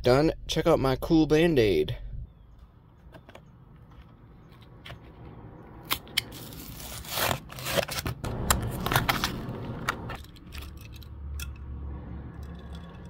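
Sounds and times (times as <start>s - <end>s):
cardboard ripping: 5.9s - 9.9s.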